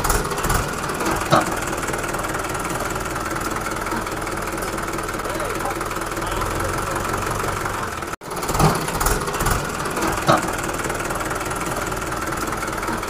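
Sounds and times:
tractor engine running: 0.0s - 13.0s.

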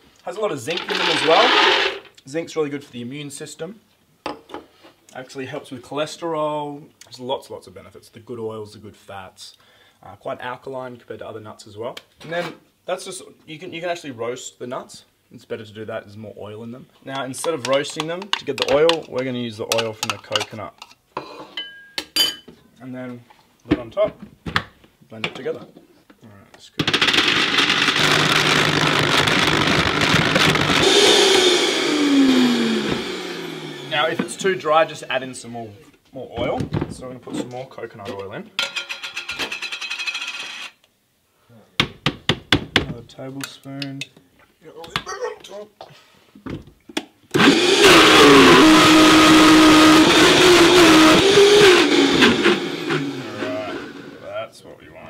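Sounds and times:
blender grinding nuts: 0.7s - 2.1s, 26.8s - 34.4s, 47.3s - 54.2s.

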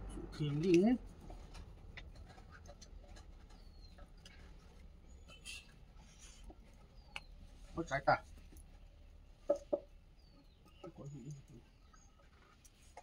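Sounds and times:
hands ticking and rubbing: 0.4s - 13.0s.

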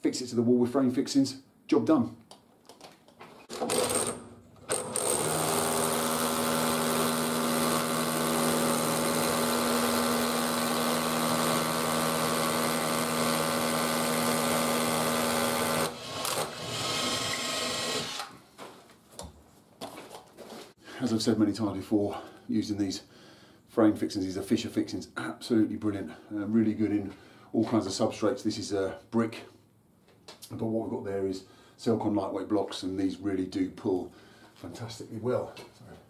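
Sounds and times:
cordless drill running: 3.5s - 18.4s.

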